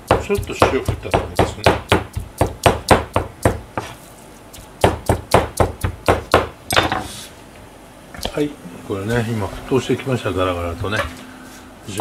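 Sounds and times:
knife chopping on cutting board: 0:00.0 - 0:04.0, 0:04.6 - 0:06.5.

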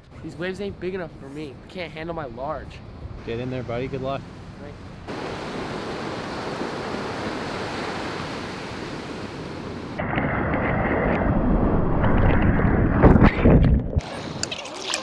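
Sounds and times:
water rushing and splashing: 0:03.2 - 0:10.0, 0:14.0 - 0:15.0
ocean surf breaking: 0:03.2 - 0:10.1.

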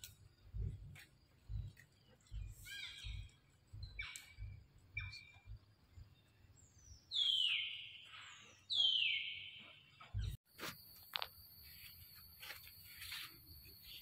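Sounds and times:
high-pitched animal calls: 0:02.5 - 0:05.4.

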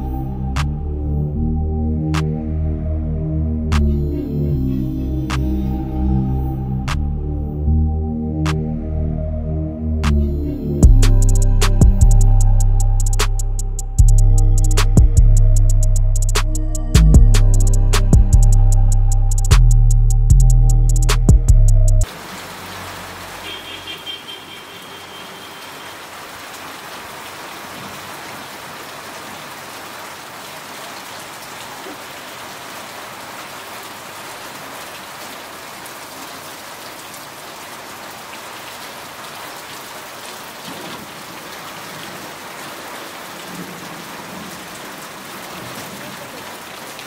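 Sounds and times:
heavy rain: 0:22.0 - 0:47.0
rain splashing into metal basins: 0:22.0 - 0:47.0.

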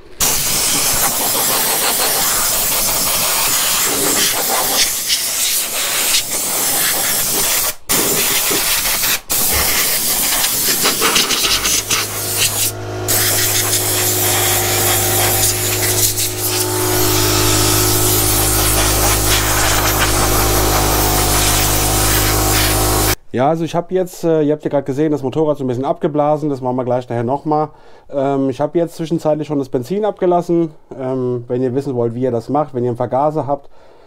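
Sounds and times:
air blow gun hissing: 0:00.1 - 0:23.2
air compressor humming: 0:00.1 - 0:23.2.

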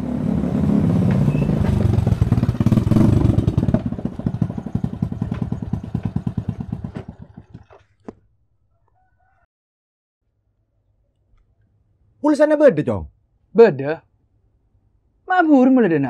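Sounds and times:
small motorcycle engine idling: 0:01.0 - 0:07.8.

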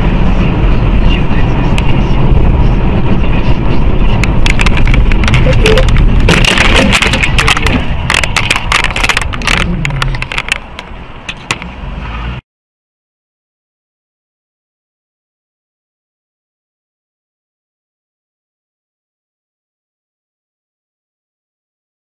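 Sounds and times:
road and engine rumble: 0:00.0 - 0:12.4
sharp knocks and clatter: 0:04.2 - 0:11.7.

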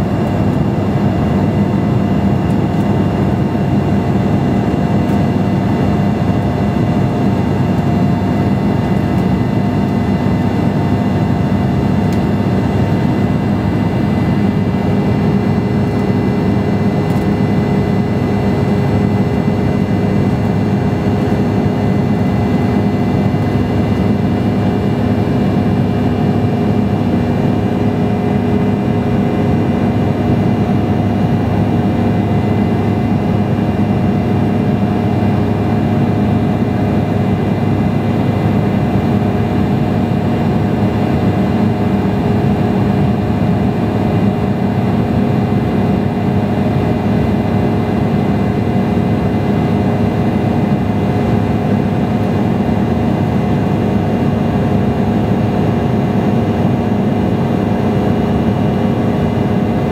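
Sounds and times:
airflow rush in jet cabin: 0:00.0 - 0:59.9
jet engines humming: 0:00.0 - 0:59.9.

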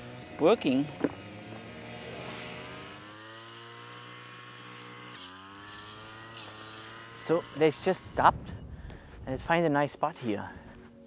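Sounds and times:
lawn mower engine running: 0:00.0 - 0:08.3.

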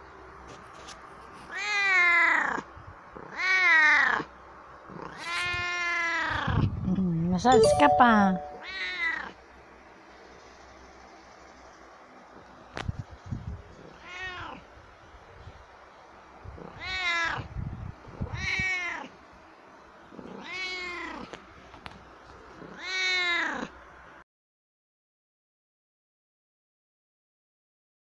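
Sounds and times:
cat meowing: 0:08.6 - 0:09.3, 0:13.9 - 0:14.6, 0:16.7 - 0:17.5, 0:18.3 - 0:19.1, 0:20.3 - 0:21.3, 0:22.6 - 0:23.7.

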